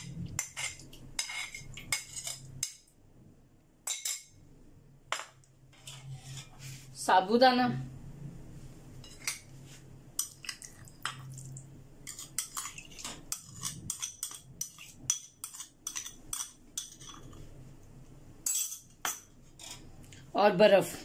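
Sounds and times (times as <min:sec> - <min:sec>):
metal spoon scraping glass bowl: 0:00.0 - 0:02.5, 0:05.8 - 0:06.7, 0:12.0 - 0:17.4.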